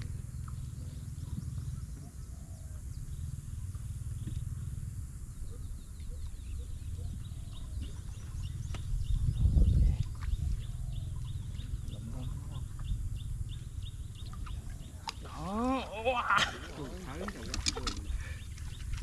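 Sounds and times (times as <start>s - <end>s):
faint bird chirps: 0.0s - 19.0s
wind buffeting microphone: 5.4s - 15.3s.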